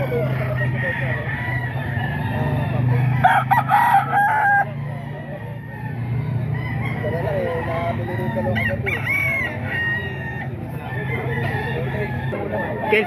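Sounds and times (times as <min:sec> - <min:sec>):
distant roosters crowing: 0:00.0 - 0:13.0
rooster crowing loudly: 0:03.1 - 0:04.7.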